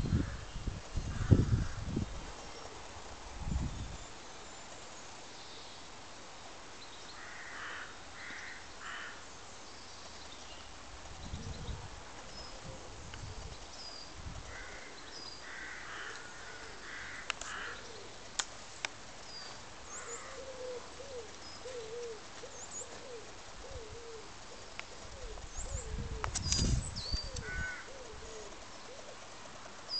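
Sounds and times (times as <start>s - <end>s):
small birds chirping: 9.4s - 29.9s
dove cooing: 14.5s - 18.3s, 19.8s - 26.3s, 27.2s - 29.7s.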